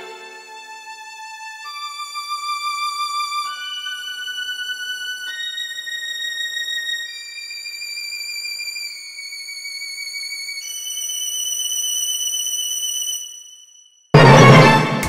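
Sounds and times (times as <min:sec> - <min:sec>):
loud drum hit: 0:14.2 - 0:15.0.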